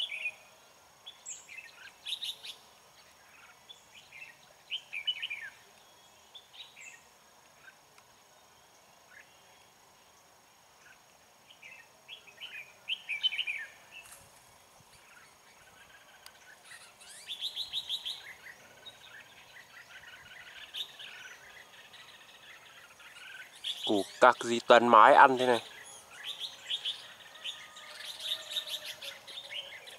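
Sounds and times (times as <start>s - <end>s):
bulbul song: 15.0s - 29.9s.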